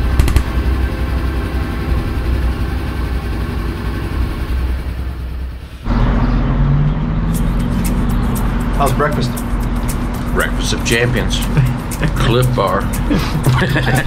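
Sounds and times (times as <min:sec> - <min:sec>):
motorcycle engine running: 0:00.0 - 0:05.6
steady engine hum: 0:00.0 - 0:14.0
road and wind noise: 0:03.9 - 0:13.8.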